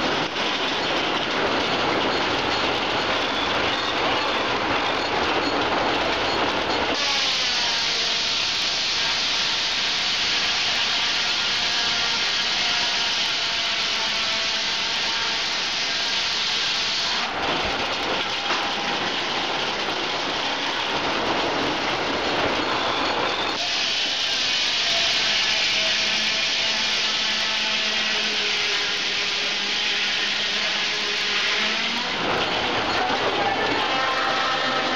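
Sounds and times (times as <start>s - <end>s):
log carriage travelling on rails: 0.0s - 34.9s
spinning saw blades: 22.7s - 34.9s.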